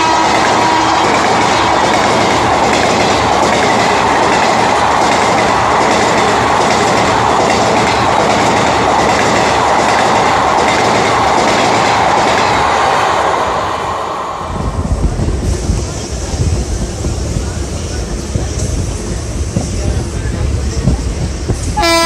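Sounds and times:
train wheels clattering over rail joints: 0:00.2 - 0:12.6.

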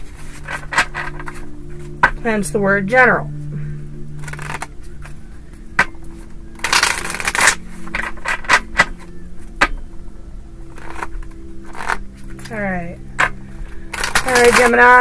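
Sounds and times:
cards being shuffled: 0:00.0 - 0:02.2, 0:04.2 - 0:05.2, 0:05.8 - 0:09.8, 0:10.7 - 0:14.8.

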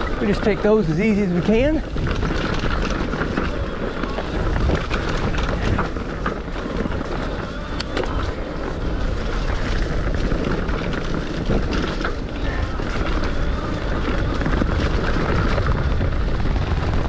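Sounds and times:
bike tyres rolling on dirt trail: 0:00.0 - 0:17.0
wind rumbling on microphone: 0:00.0 - 0:17.0.

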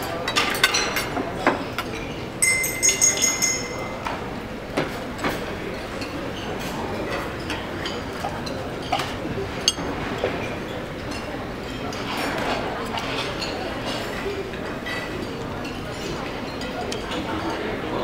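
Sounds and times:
bright ringing tone: 0:02.4 - 0:04.1
percussion props tapping and clinking: 0:02.4 - 0:05.3.

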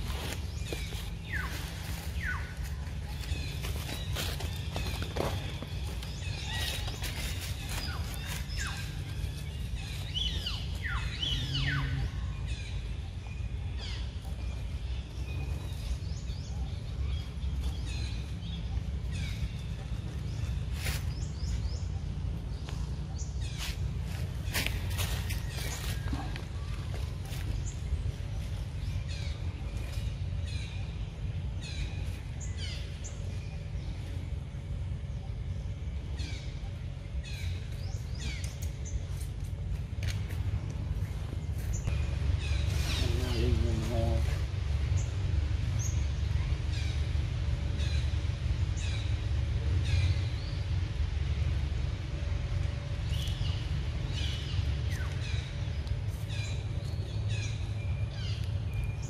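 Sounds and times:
birds chirping: 0:00.0 - 0:59.0
steady low rumble: 0:00.0 - 0:59.0.

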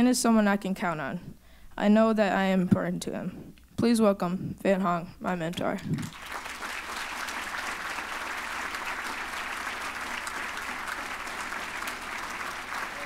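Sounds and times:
audience applauding: 0:06.0 - 0:13.0.

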